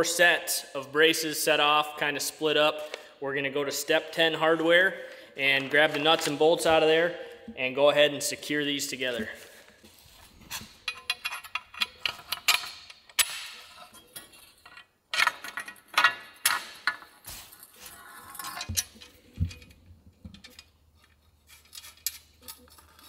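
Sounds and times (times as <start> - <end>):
metal bolts and tubes clinking: 10.7 - 23.0.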